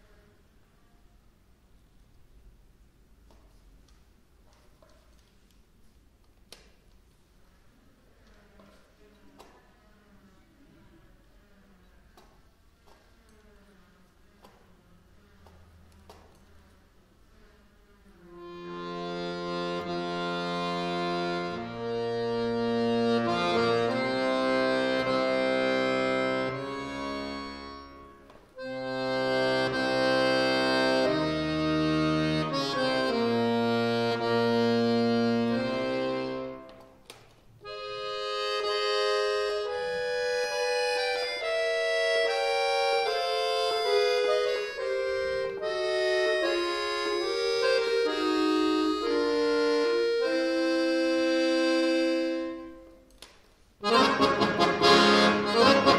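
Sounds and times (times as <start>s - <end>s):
button accordion playing: 18.3s - 36.9s, 37.6s - 53.0s, 53.8s - 55.9s.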